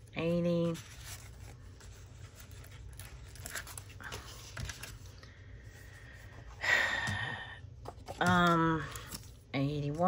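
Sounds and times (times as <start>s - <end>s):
paper rustling and handling: 0.0s - 5.4s, 7.8s - 10.0s.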